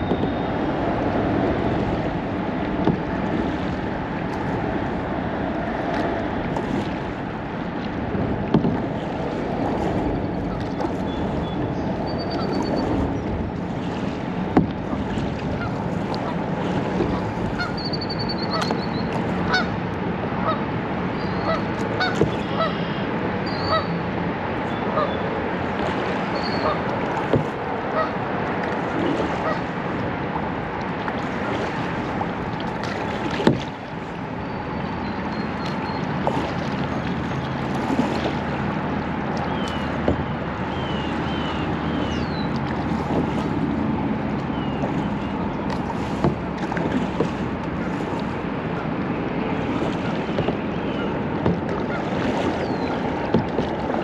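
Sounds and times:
water and wind around kayak: 0.0s - 54.0s
geese honking: 24.9s - 25.1s, 27.9s - 28.2s.

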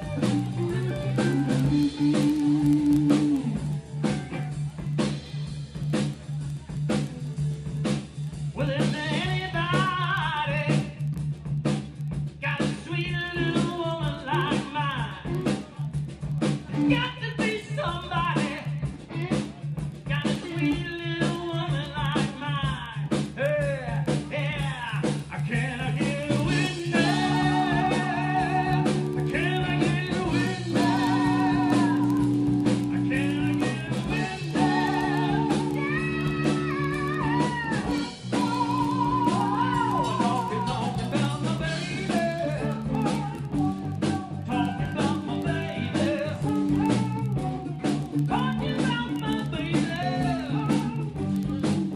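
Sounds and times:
person singing: 0.0s - 3.8s, 8.6s - 11.0s, 12.4s - 15.7s, 25.4s - 51.9s
blues-rock band playing: 0.0s - 51.9s.

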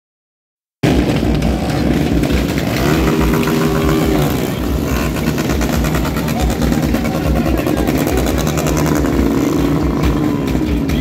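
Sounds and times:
motorcycle engines revving: 0.8s - 11.0s.

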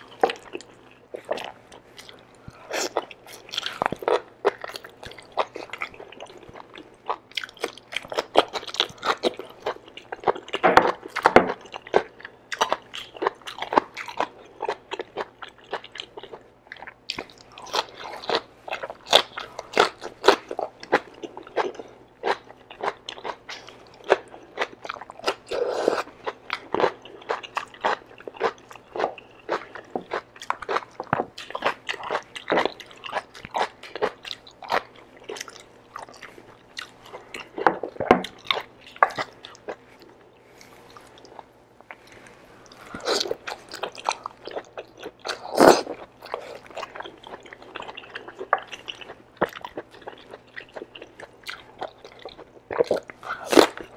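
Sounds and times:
biting and chewing food: 0.0s - 53.9s.

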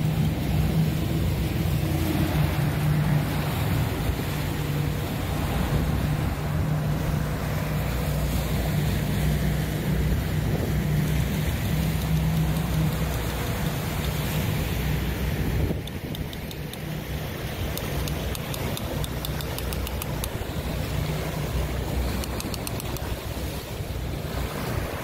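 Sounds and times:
churning wake water: 0.0s - 25.0s
outboard motors droning: 0.0s - 25.0s.

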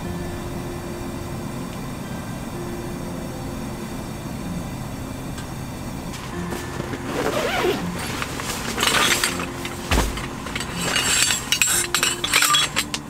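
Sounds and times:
glass and tableware clinking: 8.0s - 13.0s.

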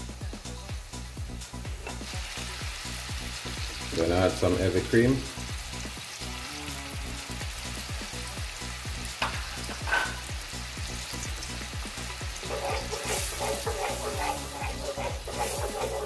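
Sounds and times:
sauce bubbling and sizzling: 0.0s - 16.0s
wooden spoon stirring sauce: 12.4s - 16.0s.

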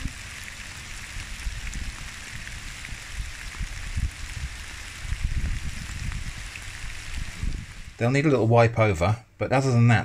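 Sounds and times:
rain hissing through trees: 0.0s - 10.0s.

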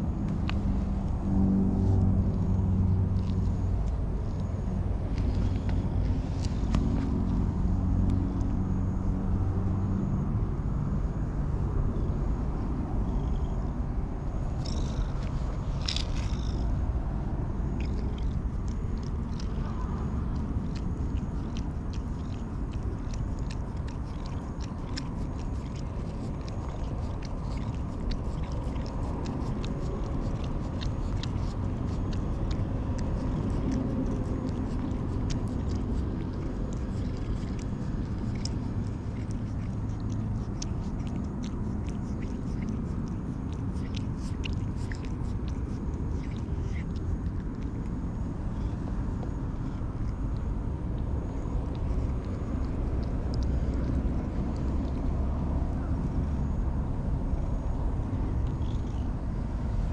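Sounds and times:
cat purring: 14.4s - 16.8s, 17.7s - 50.2s, 57.2s - 59.9s
cat licking and rubbing hand: 17.8s - 48.0s, 51.3s - 55.2s.

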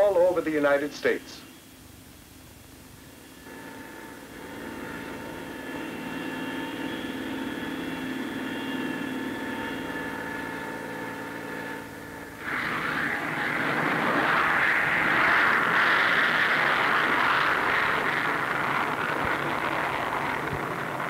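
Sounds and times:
jet engine high whine: 0.0s - 21.0s
loud jet roar: 11.7s - 21.0s.

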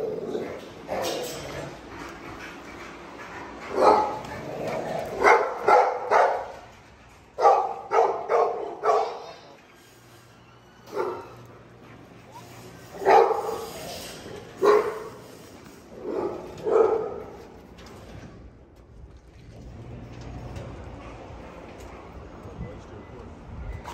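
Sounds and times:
dog barking: 3.7s - 4.2s, 5.2s - 6.6s, 7.4s - 9.4s, 10.9s - 11.4s, 13.0s - 13.7s, 14.6s - 15.2s, 16.0s - 17.4s.

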